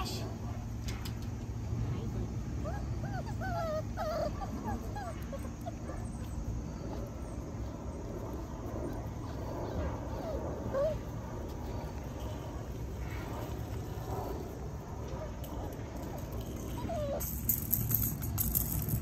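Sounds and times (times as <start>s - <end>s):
steady low rumble: 0.0s - 19.0s
puppies whimpering yips: 2.6s - 7.4s, 8.8s - 11.9s, 16.5s - 18.1s.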